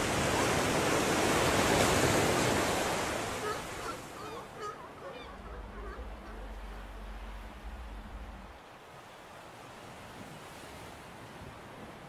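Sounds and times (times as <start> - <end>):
shrill gull calls: 3.4 - 8.5.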